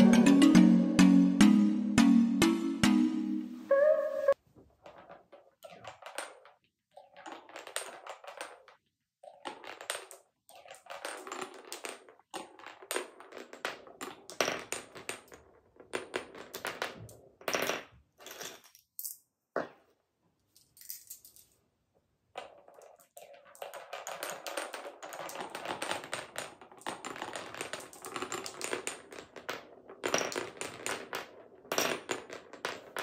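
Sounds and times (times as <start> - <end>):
marble rattling along wooden tracks: 4.8 - 17.2, 22.4 - 33.0
marble clicking against wooden blocks: 4.8 - 17.7, 22.4 - 33.0.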